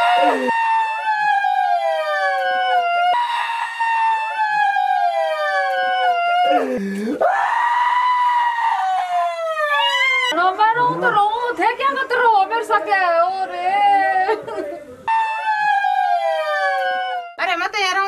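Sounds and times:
women wailing: 0.0 - 0.6, 5.1 - 11.3, 12.8 - 15.0, 16.3 - 17.3.

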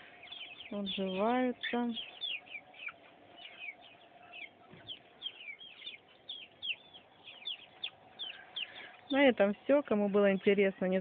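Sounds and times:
chicks peeping: 0.0 - 11.0.

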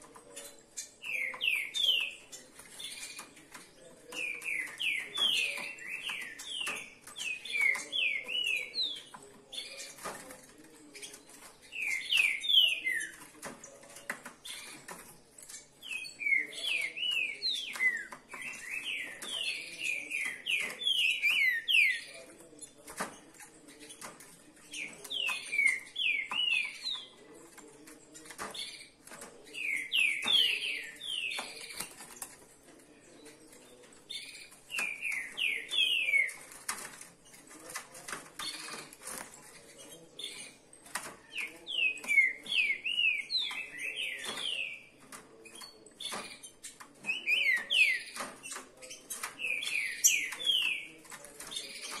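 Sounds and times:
birds singing whistled notes: 0.0 - 3.4, 4.1 - 10.0, 11.0 - 13.3, 15.5 - 22.8, 24.7 - 27.2, 28.5 - 32.1, 34.1 - 36.5, 39.6 - 52.0
clicks in wire cages: 0.0 - 52.0.

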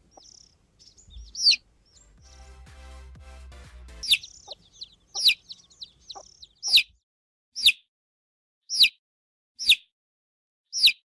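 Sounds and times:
baby chicks peeping: 0.0 - 2.6, 4.0 - 7.0, 7.6 - 7.8, 8.7 - 9.0, 9.6 - 9.9, 10.7 - 11.0.

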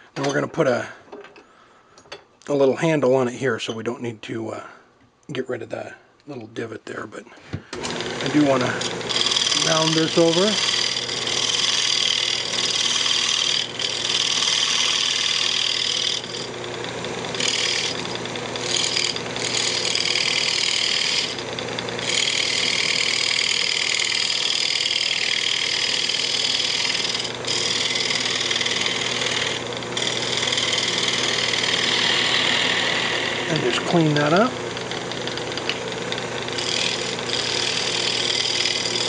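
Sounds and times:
gouge cutting wood on lathe: 7.8 - 39.0
lathe motor hum: 7.8 - 39.0.

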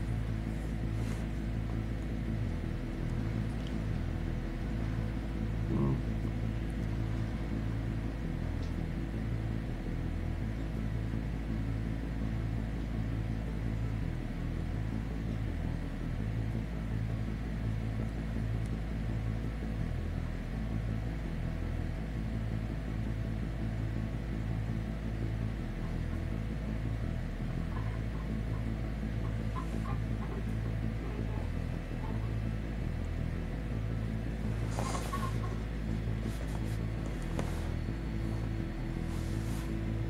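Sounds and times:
faint steady hum: 0.0 - 40.0.

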